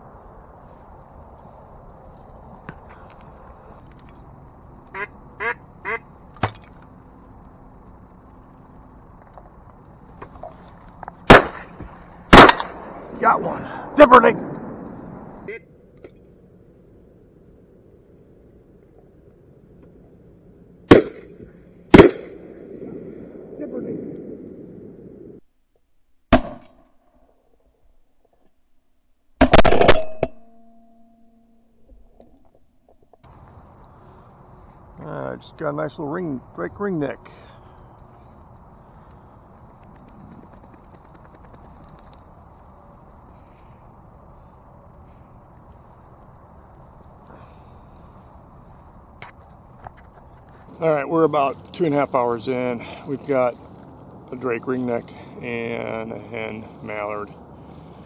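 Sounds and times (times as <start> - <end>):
faint steady hum: 0.0 - 25.5, 33.2 - 58.0
raspy duck quacks: 4.9 - 6.1, 15.5 - 15.7
shotgun blasts: 11.2 - 13.2, 20.9 - 24.3.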